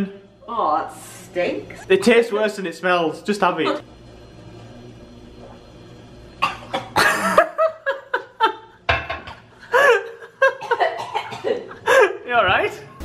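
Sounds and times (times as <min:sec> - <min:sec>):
laughter: 0:07.0 - 0:08.8, 0:09.7 - 0:12.2.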